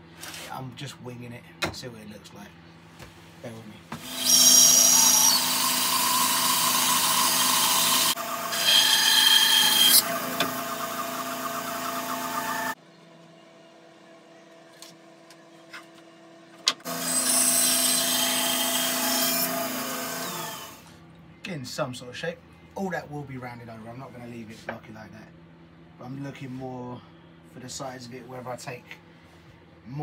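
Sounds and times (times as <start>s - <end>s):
bandsaw cutting wood: 4.0s - 12.8s, 16.8s - 20.8s.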